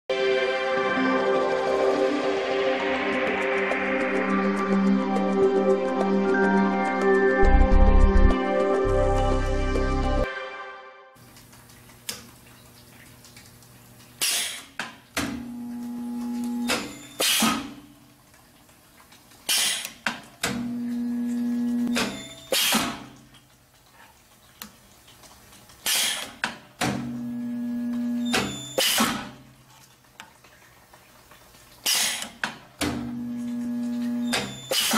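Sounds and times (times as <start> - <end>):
electrical welding buzz: 15.3 - 18.0, 20.5 - 23.2, 27.0 - 29.4, 33.0 - 34.9.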